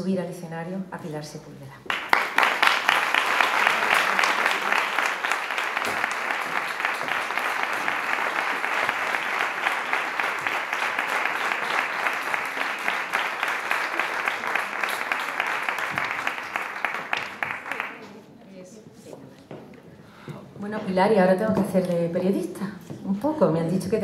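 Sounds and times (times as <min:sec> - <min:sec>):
audience applauding: 0:01.9 - 0:18.2.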